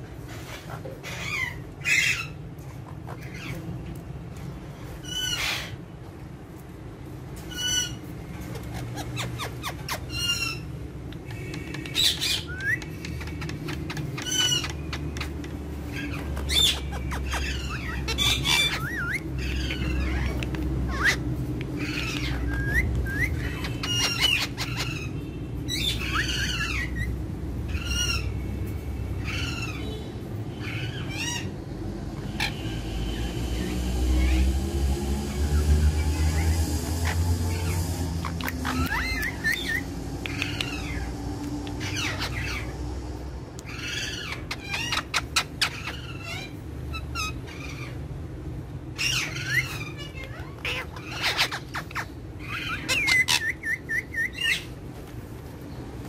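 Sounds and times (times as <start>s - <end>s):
parakeets squawking and chattering: 0.0s - 56.0s.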